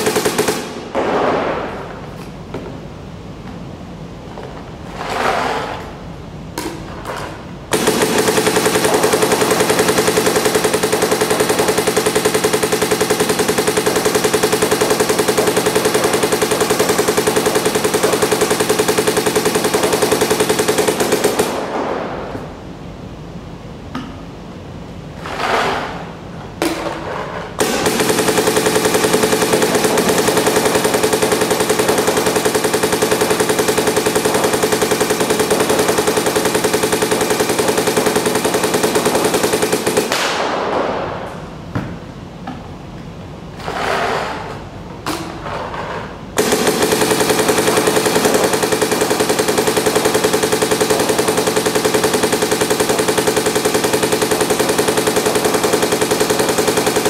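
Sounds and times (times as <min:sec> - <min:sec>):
paintball marker rapid firing: 0:00.0 - 0:01.8, 0:07.7 - 0:21.9, 0:27.6 - 0:40.8, 0:46.4 - 0:57.0.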